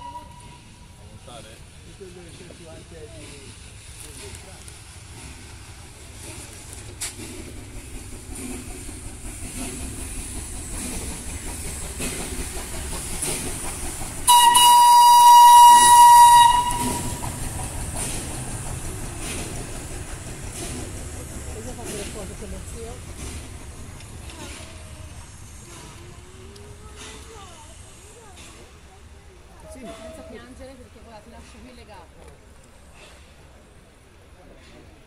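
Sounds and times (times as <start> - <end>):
steam locomotive whistle: 0.0 - 0.8, 14.2 - 17.4
locomotive rumble and clatter: 0.0 - 35.0.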